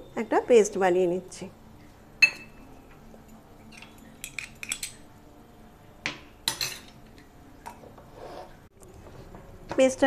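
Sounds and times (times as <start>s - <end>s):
spoon clinking against bowls: 2.2s - 5.1s, 6.4s - 7.8s.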